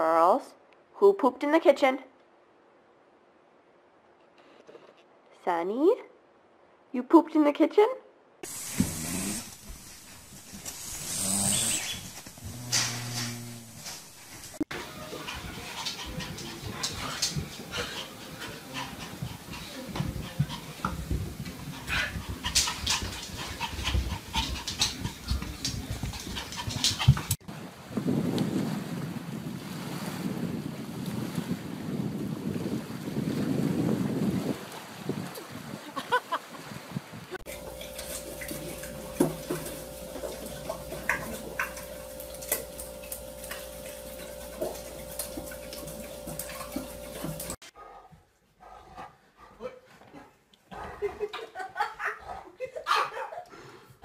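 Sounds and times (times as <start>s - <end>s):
puppy panting: 11.8s - 27.4s, 37.5s - 49.6s
steady hum: 37.5s - 47.6s.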